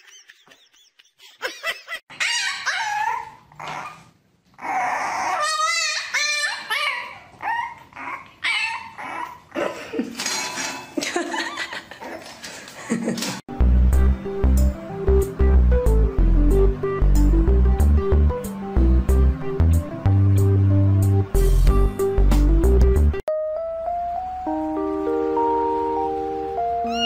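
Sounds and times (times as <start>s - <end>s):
puppy whining and yipping: 2.1s - 9.6s, 26.8s - 27.0s.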